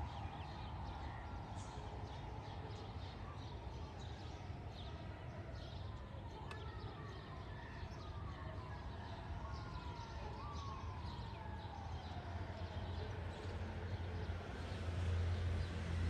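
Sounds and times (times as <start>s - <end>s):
distant wailing siren tone: 8.2s - 14.0s.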